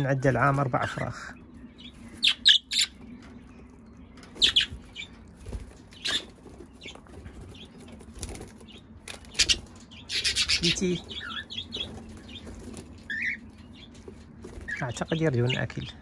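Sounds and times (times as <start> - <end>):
birds flapping wings: 4.3 - 13.4, 14.0 - 15.2.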